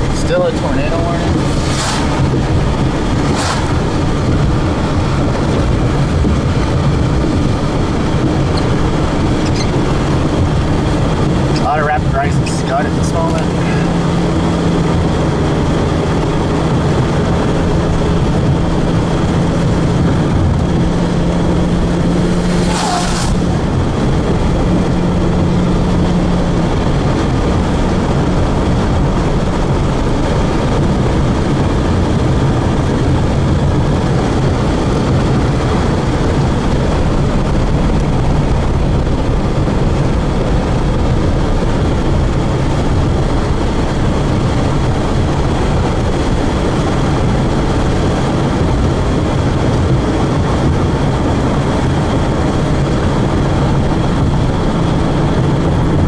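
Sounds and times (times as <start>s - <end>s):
car road and engine noise: 0.0s - 56.0s
short swish: 1.2s - 4.2s, 22.3s - 23.6s.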